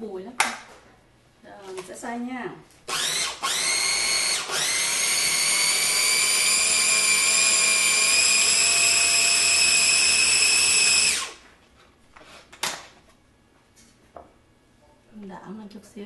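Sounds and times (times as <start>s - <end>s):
food chopper motor whining: 2.9s - 11.4s.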